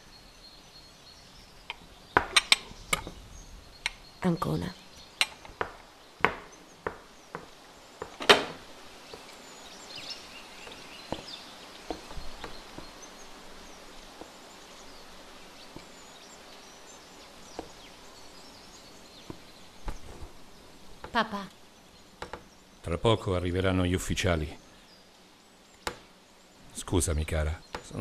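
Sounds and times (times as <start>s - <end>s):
faint bird chirps: 0.0s - 28.0s
sharp knocks: 5.2s - 8.6s.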